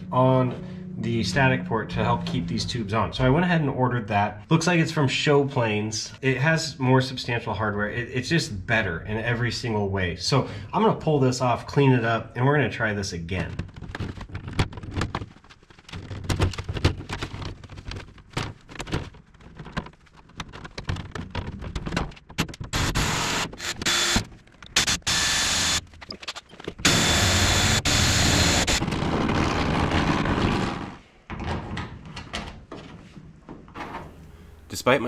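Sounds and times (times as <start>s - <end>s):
handling knocks and clicks: 13.3s - 22.8s
cordless drill drilling into metal: 22.8s - 24.2s, 24.8s - 25.8s, 26.8s - 30.9s.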